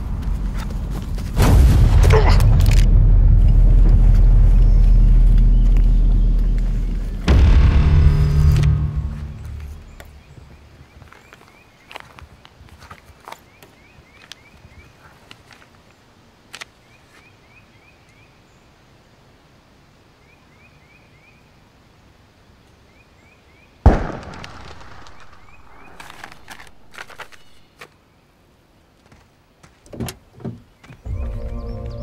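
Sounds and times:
loud impact with rushing noise: 0.0s - 10.2s
music: 7.3s - 9.7s, 31.1s - 32.0s
small bird chirping: 30.7s - 32.0s.

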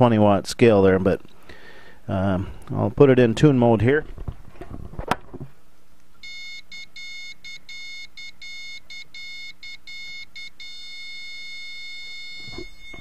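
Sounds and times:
morse code beeping tone: 6.2s - 13.0s.

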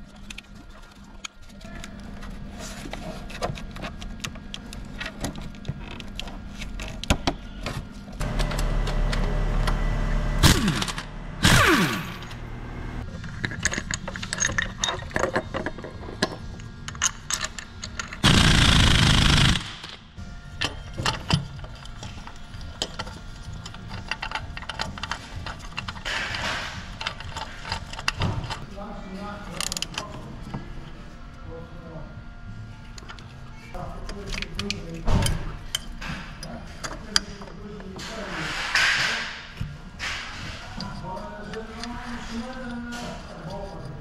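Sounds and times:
power tool whining: 8.2s - 13.0s
loud harsh burst: 8.3s - 13.0s, 18.2s - 19.8s
metal parts clicking and rattling: 13.0s - 20.0s, 20.6s - 28.6s, 29.4s - 30.3s.

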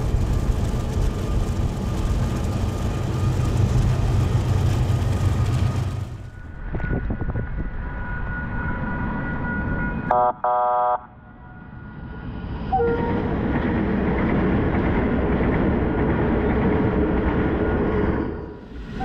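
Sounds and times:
diesel locomotives passing: 0.0s - 19.0s
locomotive horn blasts: 10.1s - 11.1s.

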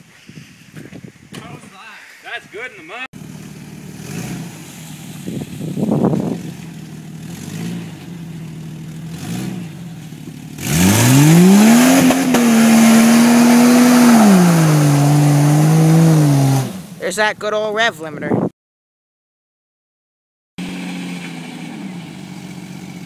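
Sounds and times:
car engine revving: 3.2s - 17.0s
tires spinning in mud: 3.2s - 17.0s, 20.6s - 23.0s.

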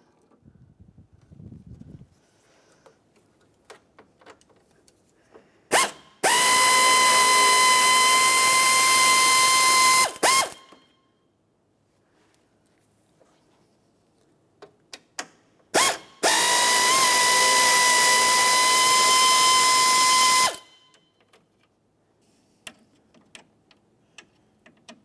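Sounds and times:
power ratchet whining: 5.7s - 10.8s, 15.8s - 20.8s.

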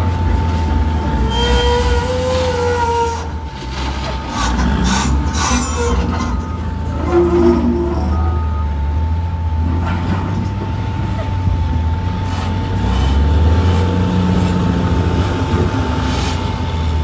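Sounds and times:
truck diesel engine idling: 0.0s - 17.0s
wheel loader engine working: 0.0s - 17.0s
steady high tone: 4.2s - 9.7s.

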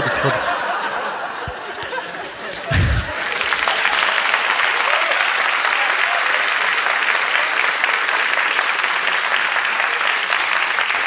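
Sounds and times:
audience applauding: 2.5s - 11.0s.

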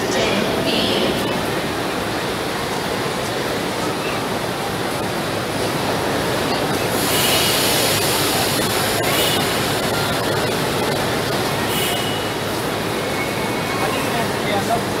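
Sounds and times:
crowd noise: 0.0s - 15.0s
train noise: 0.0s - 15.0s
loud hiss: 6.8s - 9.6s.

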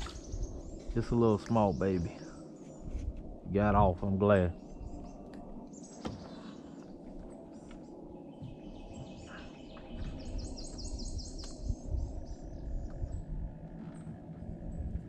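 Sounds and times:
songbirds chirping: 0.0s - 15.0s
steady low rumble: 0.0s - 15.0s.

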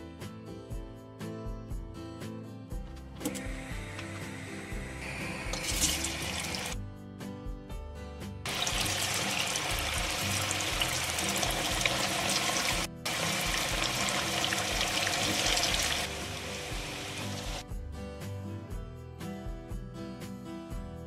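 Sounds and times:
background music with beat: 0.0s - 21.0s
potatoes sizzling in oil: 3.6s - 6.8s, 8.5s - 17.6s.

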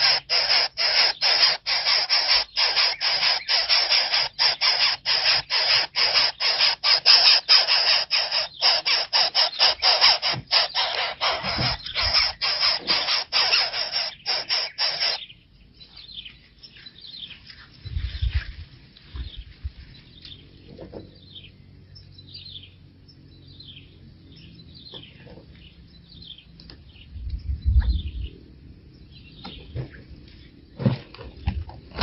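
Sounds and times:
high falling chirps: 0.0s - 15.3s
nestlings harsh raspy begging: 0.0s - 15.3s.

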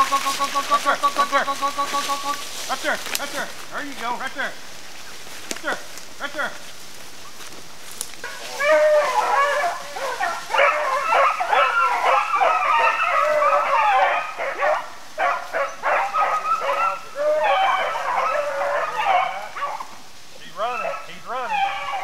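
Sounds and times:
hounds baying and yipping: 7.1s - 22.0s.

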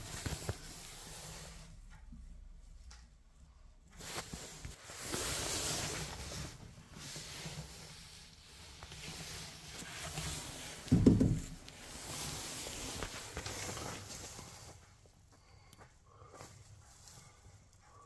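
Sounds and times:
rustling handling noise: 0.0s - 2.9s, 3.8s - 15.3s.

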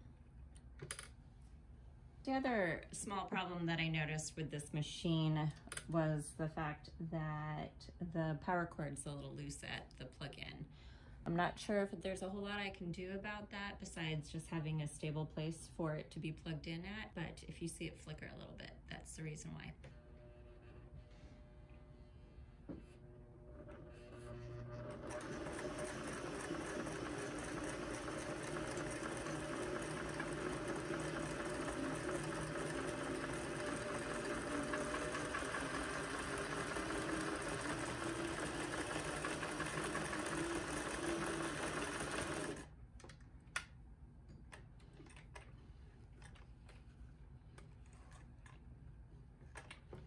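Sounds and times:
sewing machine running: 23.7s - 42.7s.

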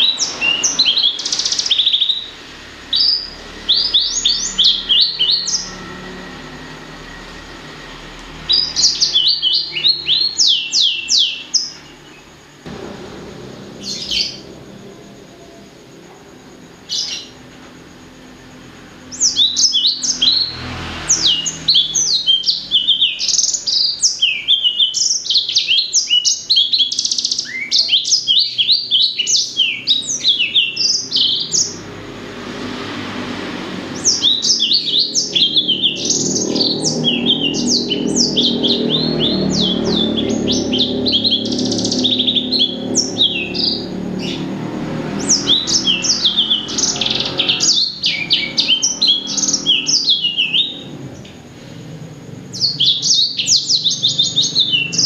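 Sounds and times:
finch singing high rapid notes: 0.0s - 12.2s, 33.9s - 50.9s.

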